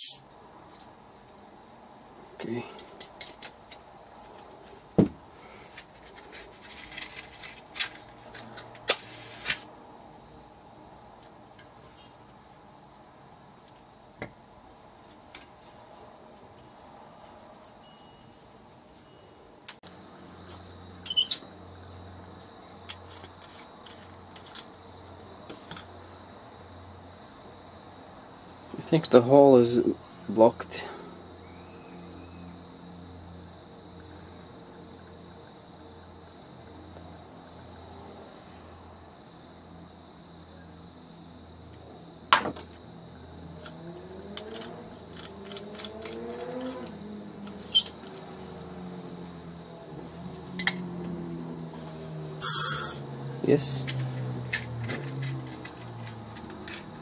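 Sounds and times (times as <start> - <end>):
small metal parts clicking: 0.0 - 1.3, 21.0 - 21.5, 22.8 - 24.9, 43.6 - 48.6, 53.9 - 57.0.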